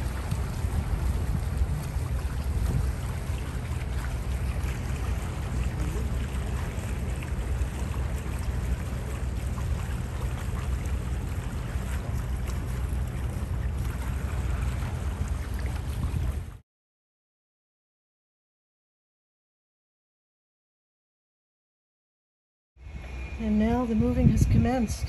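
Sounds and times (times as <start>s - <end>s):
water washing past hulls: 0.0s - 16.6s
wind rumbling on microphone: 0.0s - 16.6s, 22.8s - 25.0s.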